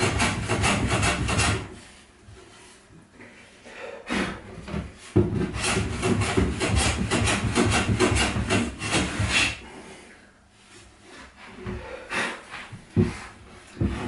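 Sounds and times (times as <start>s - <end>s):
hand plane shaving wood: 0.0s - 1.9s, 5.2s - 9.7s.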